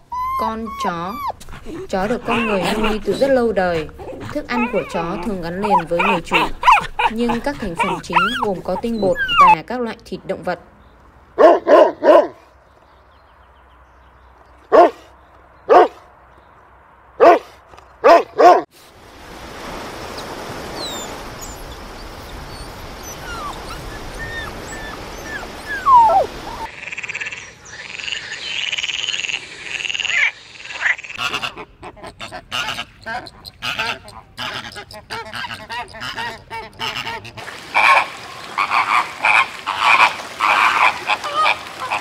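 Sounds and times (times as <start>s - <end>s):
dog barking: 11.4s - 12.4s, 14.7s - 15.0s, 15.7s - 16.0s, 17.2s - 18.7s
waves on a beach: 18.7s - 26.7s
frog croaking: 26.7s - 31.3s.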